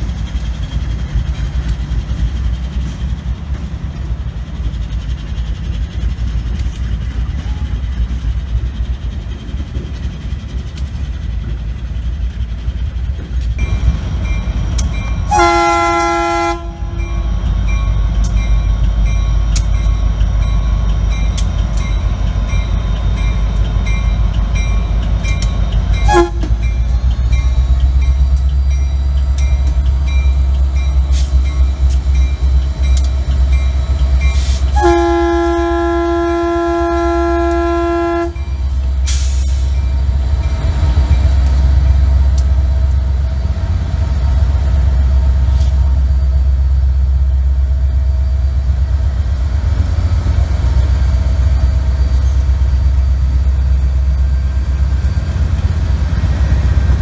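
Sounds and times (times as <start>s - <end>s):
freight train rumbling past: 0.0s - 57.0s
locomotive engine droning: 0.0s - 57.0s
train air horn blast: 15.3s - 17.0s, 26.0s - 26.6s, 34.4s - 38.4s.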